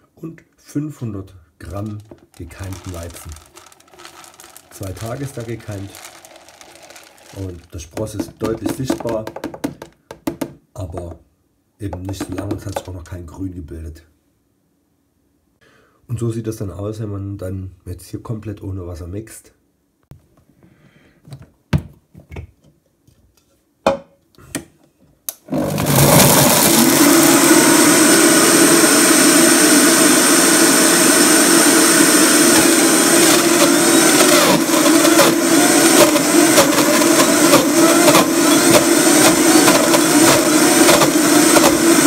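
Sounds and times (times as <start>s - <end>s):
blender grinding grains: 1.6s - 9.9s, 12.0s - 13.0s, 25.3s - 42.0s.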